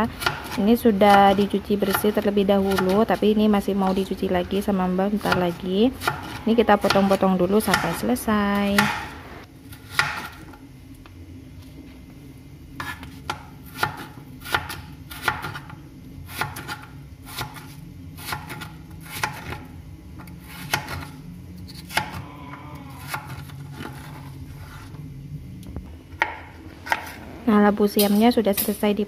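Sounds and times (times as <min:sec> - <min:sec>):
knife chopping on plastic board: 0:05.2 - 0:08.1, 0:08.8 - 0:09.2, 0:09.9 - 0:10.4, 0:20.6 - 0:21.1, 0:21.9 - 0:22.2.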